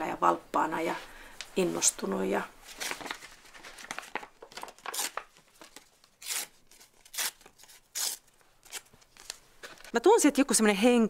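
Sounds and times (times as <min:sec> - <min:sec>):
crinkly material rustling: 0:01.4 - 0:06.2.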